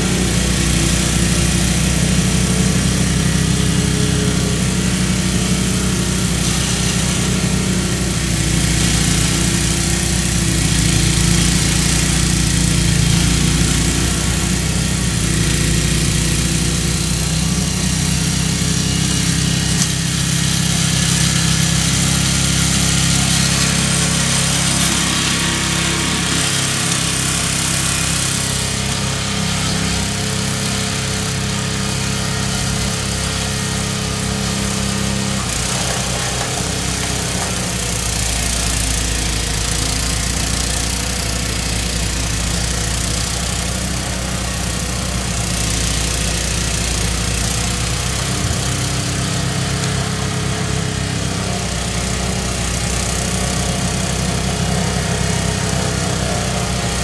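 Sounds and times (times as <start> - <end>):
snowblower engine running: 0.0 - 57.0.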